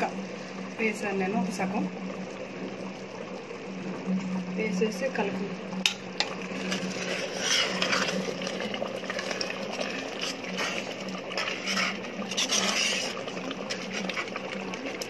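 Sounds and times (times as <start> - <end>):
steady low hum: 0.0 - 15.0
ladle scraping and sloshing pot: 5.8 - 15.0.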